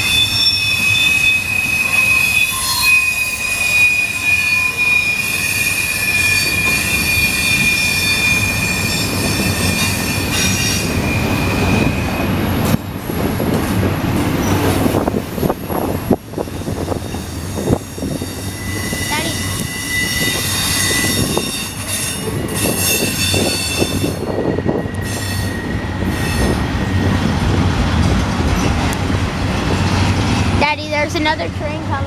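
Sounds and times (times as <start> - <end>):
train wheels squealing: 0.0 - 12.8, 14.4 - 27.2
train cars rumbling and clattering: 0.0 - 32.0.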